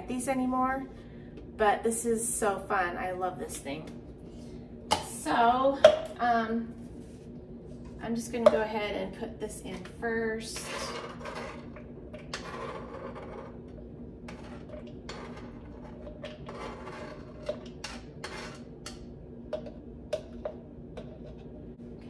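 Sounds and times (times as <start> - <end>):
knife scraping cutting board: 12.3 - 13.6, 14.3 - 18.7.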